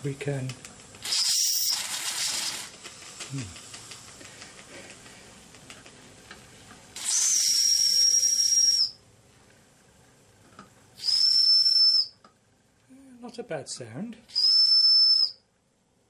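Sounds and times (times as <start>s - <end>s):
steam hiss: 1.0s - 5.1s, 6.9s - 8.9s
steam whistle: 7.0s - 9.0s, 11.0s - 12.1s, 14.3s - 15.4s.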